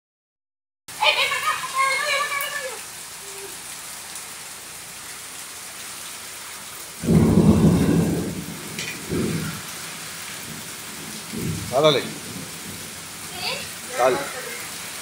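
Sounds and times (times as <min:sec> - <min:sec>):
heavy rain on pavement: 0:00.9 - 0:15.0
thunder clap rumbling: 0:07.0 - 0:13.9.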